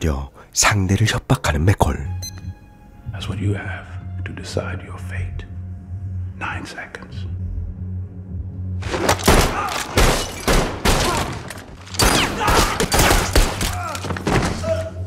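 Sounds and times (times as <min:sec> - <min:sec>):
gunshots: 0:08.9 - 0:13.9.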